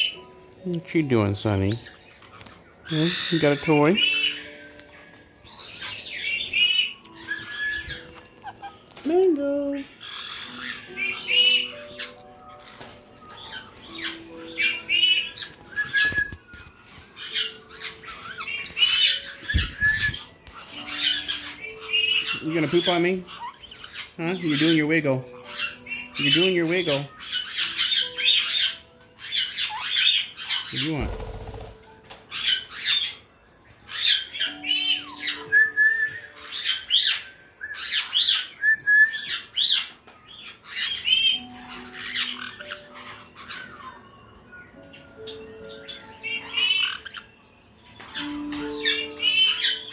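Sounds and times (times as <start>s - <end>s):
parrots squawking: 0.0s - 49.9s
whistled bird notes: 0.0s - 49.9s
wings flapping: 30.7s - 31.9s.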